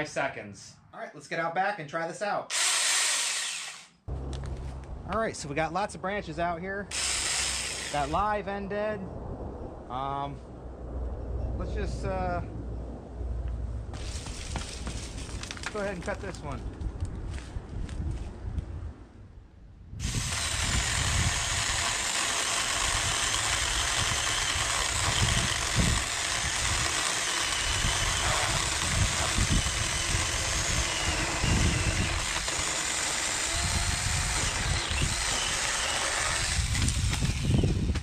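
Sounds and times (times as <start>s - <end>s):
mini chainsaw cutting branch: 2.5s - 3.9s, 6.9s - 8.1s, 20.0s - 38.0s.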